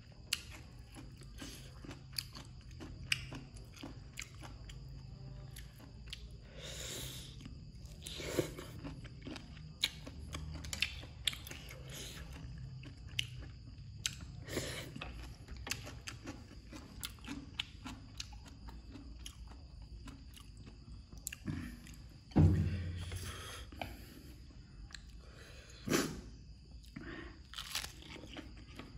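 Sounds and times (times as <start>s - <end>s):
chewing and crunching: 0.0s - 22.3s, 26.4s - 28.9s
loud thump: 22.3s - 23.4s.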